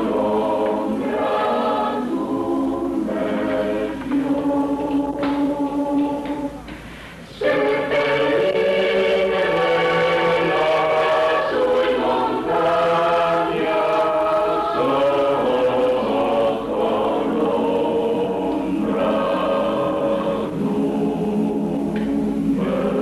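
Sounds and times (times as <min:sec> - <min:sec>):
choir singing a cappella: 0:00.0 - 0:06.7, 0:07.3 - 0:23.0.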